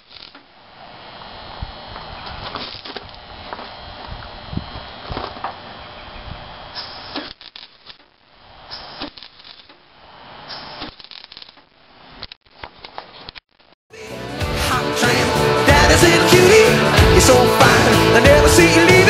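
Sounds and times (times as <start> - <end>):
welding arc crackling: 0.0 - 13.8.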